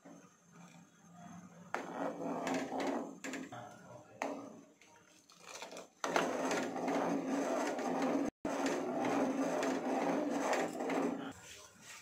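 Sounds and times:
ladle scraping a saucepan: 5.8 - 11.4.

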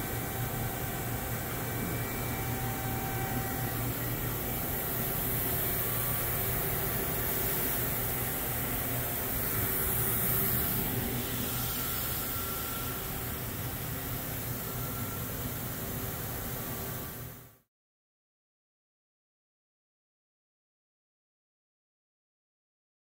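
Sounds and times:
milling machine hum: 0.0 - 17.4.

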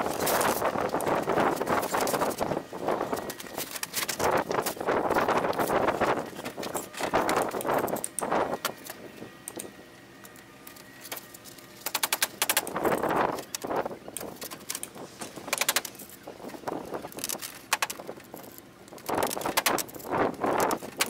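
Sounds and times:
roofing felt scraping and rustling: 0.0 - 9.1.

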